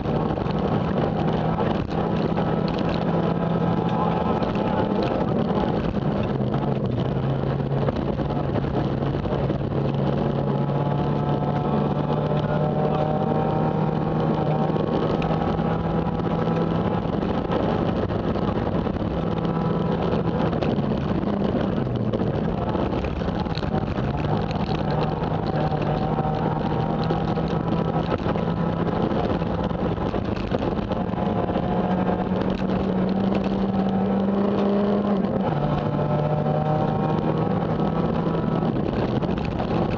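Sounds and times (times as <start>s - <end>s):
car engine at high revs: 0.0s - 39.9s
road and tyre noise: 0.0s - 39.9s.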